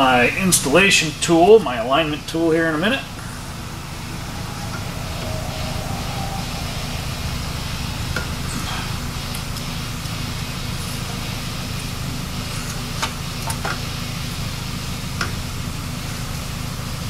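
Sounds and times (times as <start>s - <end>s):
steady low hum: 1.6s - 11.3s.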